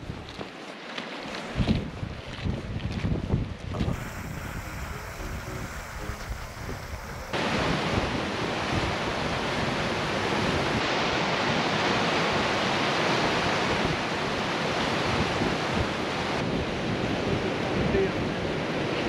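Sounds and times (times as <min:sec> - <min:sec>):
wind buffeting microphone: 0:01.6 - 0:10.8, 0:13.2 - 0:19.0.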